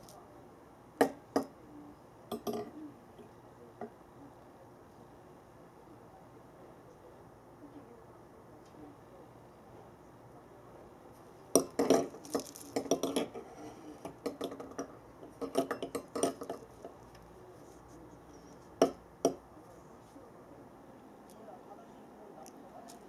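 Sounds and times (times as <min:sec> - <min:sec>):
wire ball toy clinking: 0:11.6 - 0:13.4.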